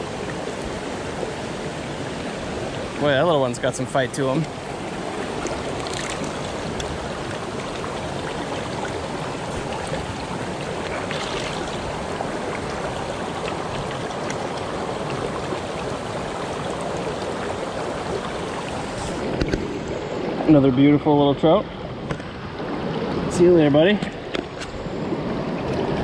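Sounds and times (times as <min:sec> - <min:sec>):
brook running over rocks: 0:00.0 - 0:19.8.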